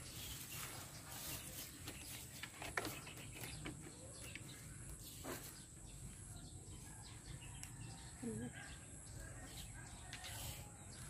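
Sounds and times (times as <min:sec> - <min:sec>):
mesh netting rustling: 0:00.0 - 0:04.3.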